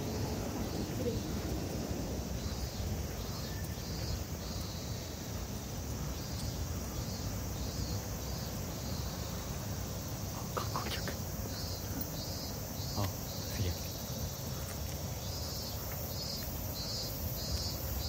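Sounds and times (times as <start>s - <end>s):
insects calling in pulses: 0.0s - 18.0s.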